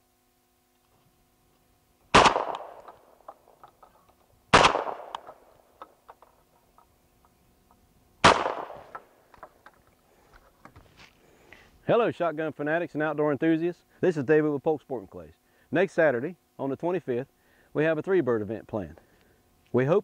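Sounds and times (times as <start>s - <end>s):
shotgun shots: 2.1s - 3.4s, 4.5s - 5.5s, 8.2s - 9.2s.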